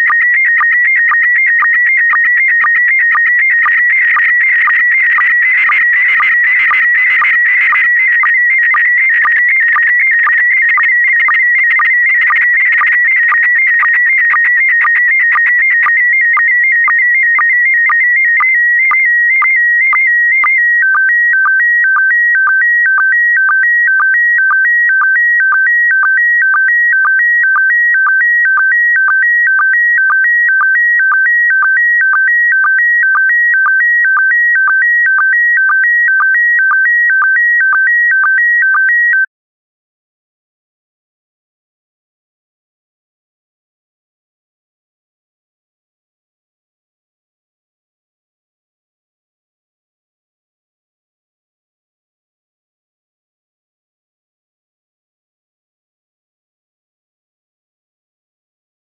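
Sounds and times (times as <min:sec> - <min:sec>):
warbling image signal tones: 0:00.0 - 0:18.0.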